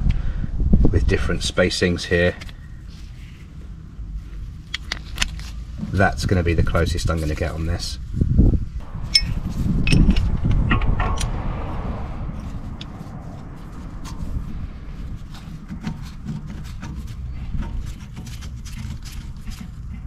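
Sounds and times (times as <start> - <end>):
heavy low thuds: 8.8 - 17.6.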